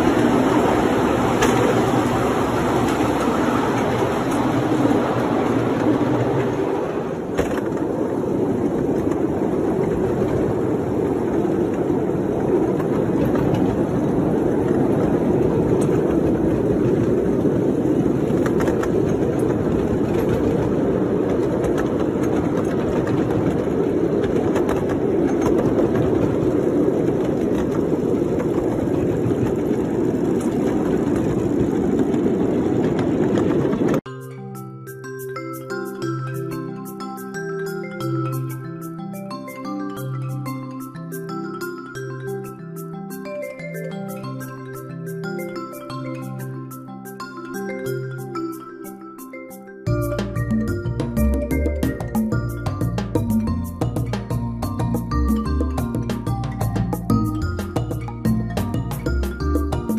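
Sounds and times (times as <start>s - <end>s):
train wheels rumbling on rail: 0.0s - 34.1s, 49.9s - 59.9s.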